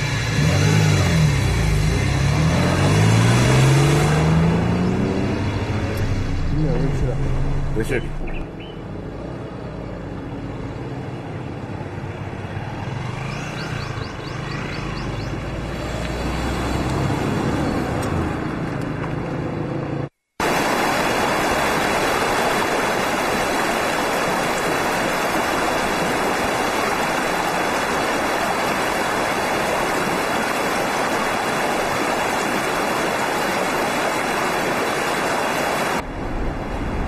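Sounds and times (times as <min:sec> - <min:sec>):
river rushing over stones: 0:20.4 - 0:36.2.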